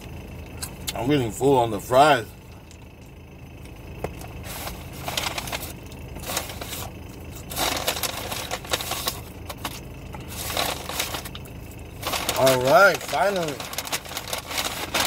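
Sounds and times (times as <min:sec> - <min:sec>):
low hum: 0:00.0 - 0:15.0
paper bag rustling: 0:04.4 - 0:15.0.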